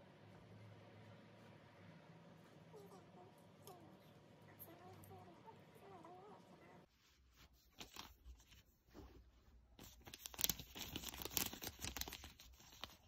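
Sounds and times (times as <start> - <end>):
cloth rustling on bedding: 6.8 - 12.1.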